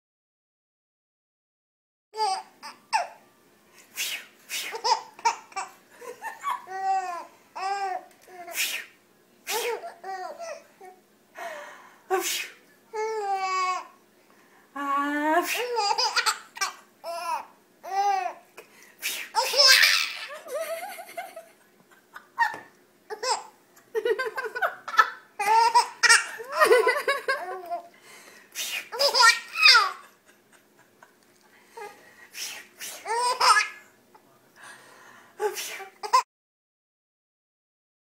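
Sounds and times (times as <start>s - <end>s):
adult making swish sounds: 3.9s - 4.8s, 8.4s - 9.8s, 12.2s - 12.6s, 19.0s - 19.5s, 28.6s - 29.0s, 32.3s - 33.1s, 35.5s - 36.0s
baby giggling: 4.7s - 8.6s, 9.5s - 10.7s, 15.5s - 18.4s, 19.3s - 27.9s, 28.8s - 31.1s, 33.0s - 33.8s, 35.8s - 36.2s.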